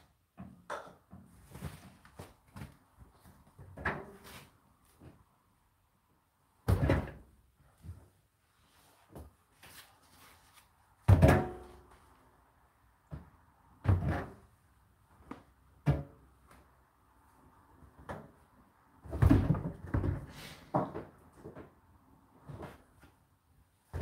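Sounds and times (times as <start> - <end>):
knocks and thuds of tumble dryers: 19.1 - 21.8.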